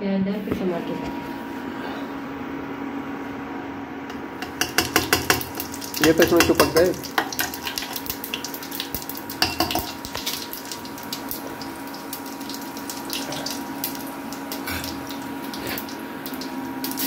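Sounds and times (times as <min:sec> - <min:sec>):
spoon knocking against pan: 0:04.4 - 0:07.5, 0:09.4 - 0:09.9
hot oil sizzling and crackling: 0:04.4 - 0:17.0.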